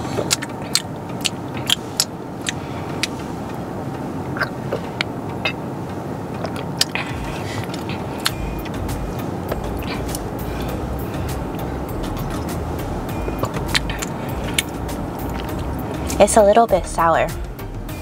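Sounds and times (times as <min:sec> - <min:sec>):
car interior rumble: 0:00.0 - 0:18.0
person gulping: 0:04.3 - 0:05.6.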